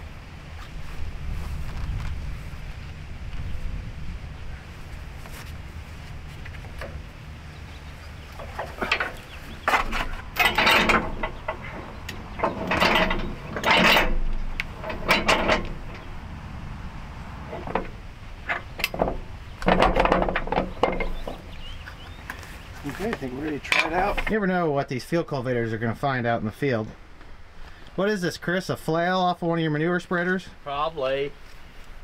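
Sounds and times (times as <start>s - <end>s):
low steady rumble: 0.0s - 32.0s
metal clacks and rattles: 8.4s - 16.3s, 17.4s - 22.1s, 22.9s - 24.4s.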